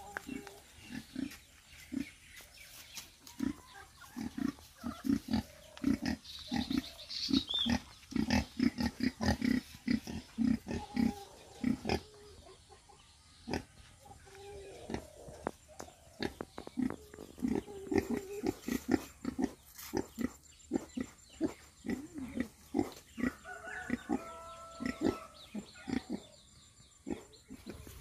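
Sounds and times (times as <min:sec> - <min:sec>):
pigs grunting: 0:03.4 - 0:12.2, 0:14.6 - 0:15.4, 0:16.1 - 0:26.4, 0:27.0 - 0:28.0.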